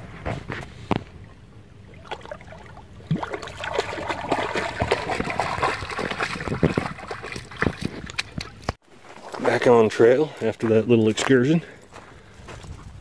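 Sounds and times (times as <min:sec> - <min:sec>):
dog splashing through water: 0:03.1 - 0:08.6.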